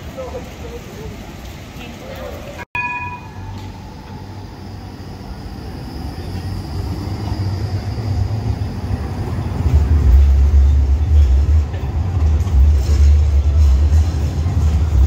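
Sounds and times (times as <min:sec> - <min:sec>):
tram rumbling: 0:00.0 - 0:15.0
faint high whine: 0:02.8 - 0:09.3.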